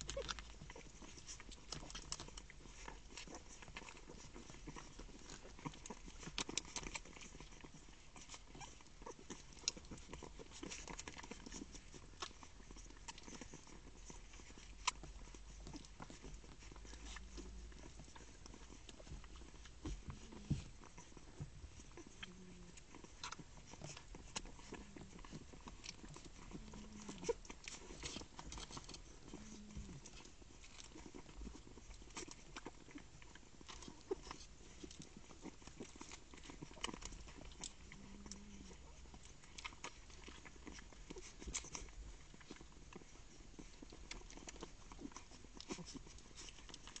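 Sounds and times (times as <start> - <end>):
puppies grunting: 0.0 - 47.0
puppies sucking: 0.0 - 47.0.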